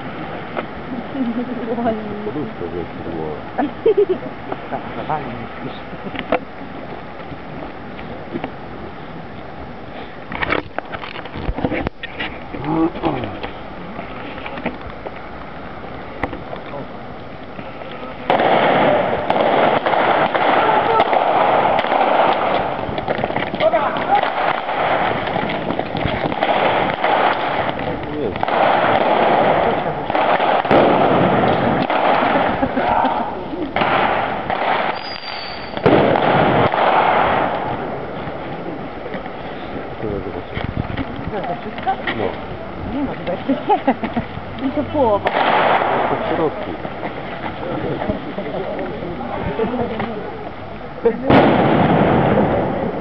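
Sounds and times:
loud steady din: 15.5 - 35.1, 35.7 - 40.7, 43.7 - 50.0, 51.2 - 53.0
loud pyrotechnic bang: 18.2 - 39.6, 45.1 - 46.7, 51.2 - 53.0
gunshots firing blanks: 18.3 - 32.8, 33.8 - 38.4, 45.2 - 46.5, 51.3 - 53.0
high whistle: 34.9 - 35.8.

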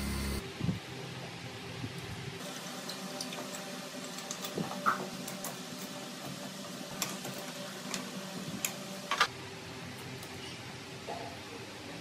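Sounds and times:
grinder motor humming: 0.0 - 0.4.

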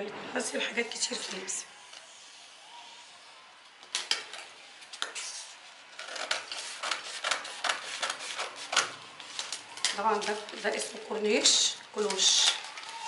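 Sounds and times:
scissors snipping paper: 6.0 - 13.0.

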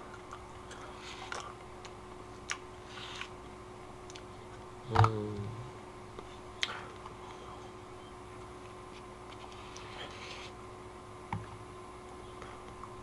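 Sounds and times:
mouth clicks and smacks eating: 0.0 - 3.4, 4.0 - 4.6
short hummed vocal sound: 4.8 - 7.8.

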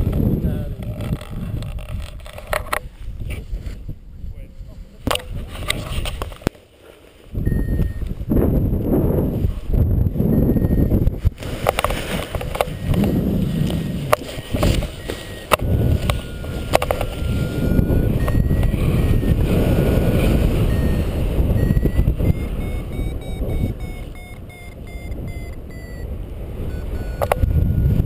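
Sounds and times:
wind buffeting microphone: 0.0 - 6.4, 7.2 - 28.0
variometer short beeps rising: 7.4 - 8.1, 10.3 - 11.0, 12.4 - 28.0.

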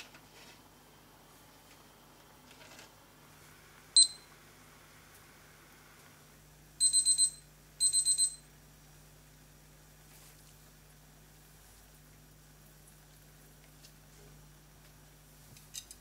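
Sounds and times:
kitchen timer beeping: 4.0 - 4.3, 6.8 - 8.5.

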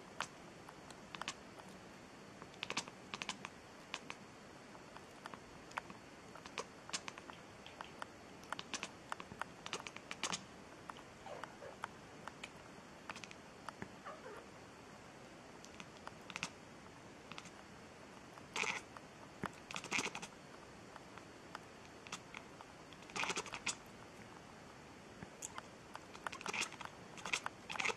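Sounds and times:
faint cat mew: 14.0 - 14.5.

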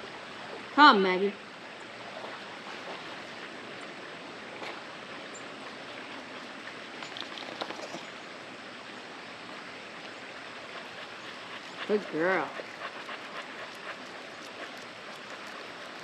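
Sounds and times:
outdoor background hiss: 0.0 - 16.0
faint ticks: 12.6 - 16.0.

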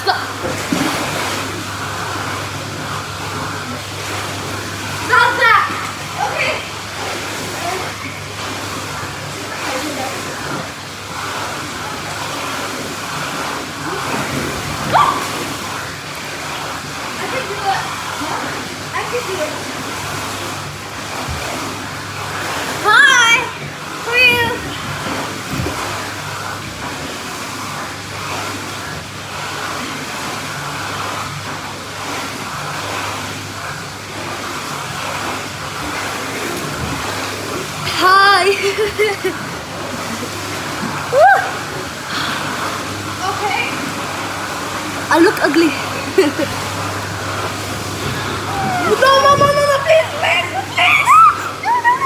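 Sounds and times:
churning pool water: 0.0 - 52.0
faint voices: 48.1 - 52.0.

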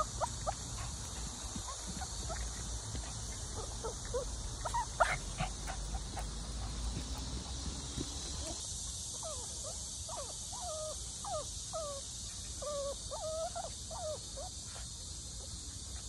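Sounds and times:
dog whining: 3.6 - 6.2.

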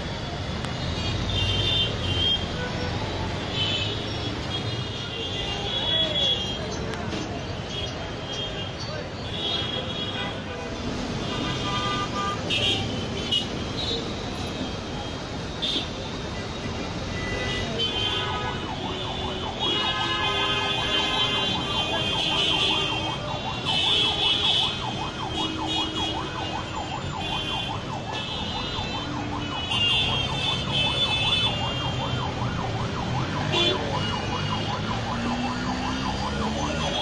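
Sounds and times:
street noise: 0.0 - 37.0
siren warbling: 31.9 - 37.0.

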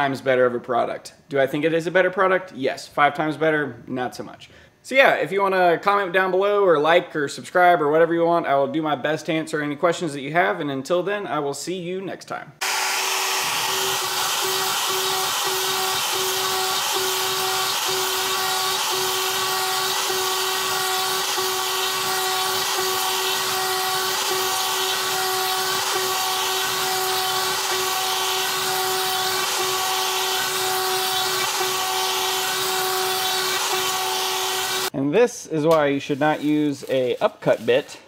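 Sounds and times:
router bit carving plywood: 12.6 - 34.9
router spindle whining: 12.6 - 34.9.

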